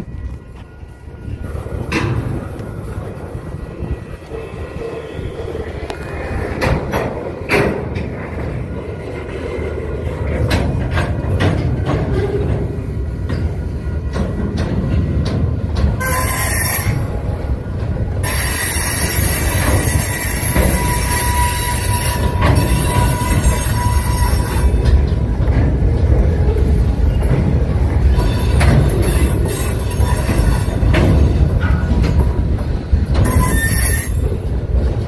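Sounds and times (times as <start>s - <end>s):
freight cars rumbling: 0.0s - 35.0s
wheels clacking over rail joints: 0.0s - 35.0s
high-pitched wheel squeal: 16.0s - 17.2s, 18.2s - 24.9s, 28.1s - 30.8s, 33.2s - 34.5s.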